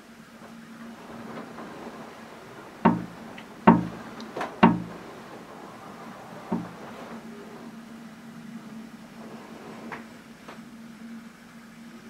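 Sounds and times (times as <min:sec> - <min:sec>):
hollow wooden knocks: 0:02.8 - 0:05.1, 0:06.5 - 0:06.8.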